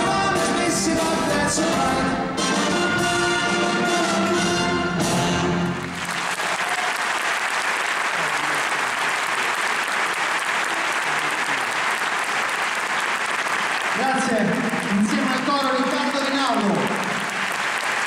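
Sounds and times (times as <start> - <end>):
big band with orchestra: 0.0 - 6.3
audience applauding: 5.5 - 18.0.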